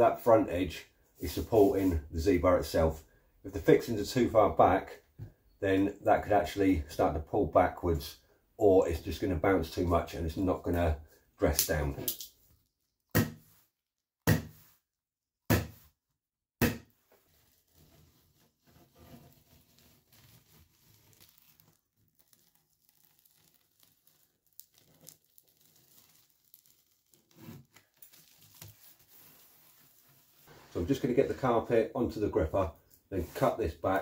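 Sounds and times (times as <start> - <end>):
foam underlay rustling and crinkling: 0.2 - 3.0, 17.0 - 34.0.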